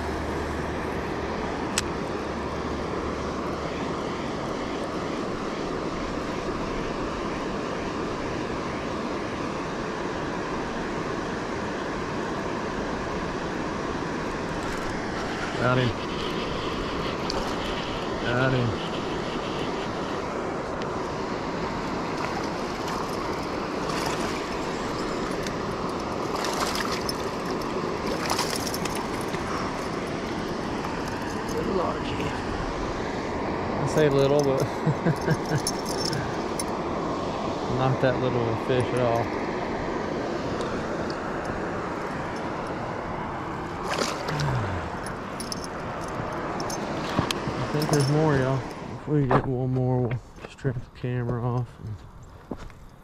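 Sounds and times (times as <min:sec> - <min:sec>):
water rushing over spillway: 0:19.8 - 0:32.9.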